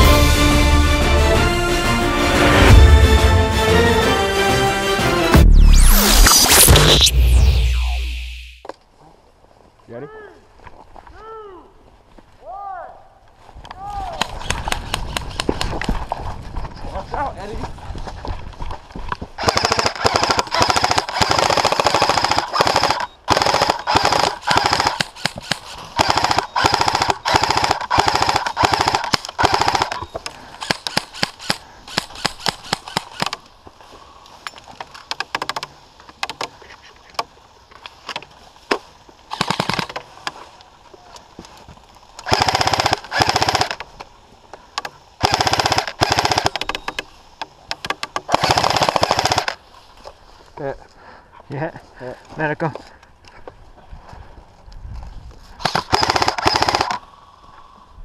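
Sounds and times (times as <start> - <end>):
airsoft guns firing bursts: 19.4 - 33.3, 39.3 - 40.0, 42.2 - 43.8, 45.2 - 46.8, 48.3 - 49.6, 55.6 - 57.0.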